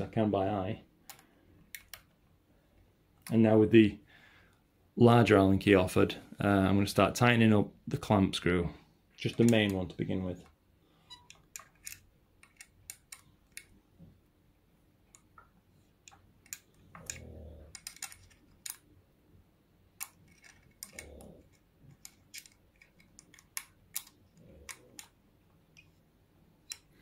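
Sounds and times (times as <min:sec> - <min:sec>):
metallic clicks of allen key: 0:16.1 - 0:18.8, 0:20.0 - 0:25.2.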